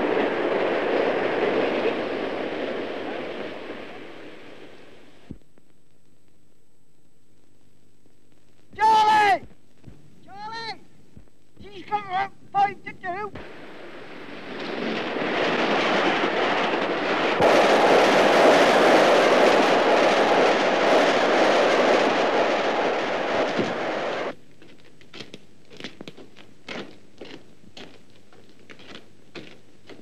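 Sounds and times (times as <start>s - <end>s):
steam train rushing past: 13.5s - 24.3s.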